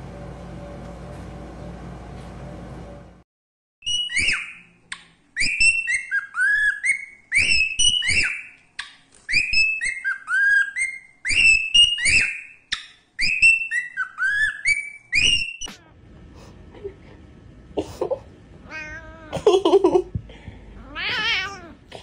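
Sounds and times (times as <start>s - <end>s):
cockatiel whistling: 3.8s - 4.7s, 5.4s - 8.6s, 9.3s - 15.7s.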